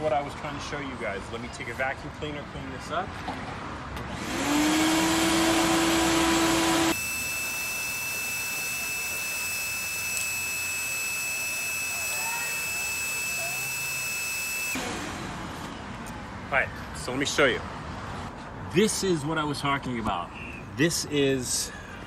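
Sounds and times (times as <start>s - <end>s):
vacuum cleaner motor whine: 4.1s - 15.2s
nozzle sucking sawdust: 4.3s - 14.8s.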